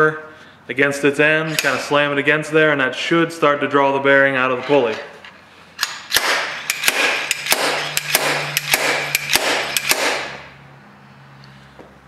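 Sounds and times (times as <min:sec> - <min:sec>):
slide hammer metallic strikes: 0:05.8 - 0:10.6.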